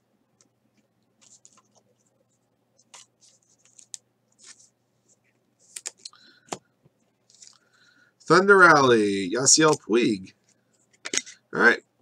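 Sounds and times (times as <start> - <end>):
trading cards rustling: 1.2 - 2.0, 2.8 - 4.7, 5.7 - 6.2, 7.2 - 7.6.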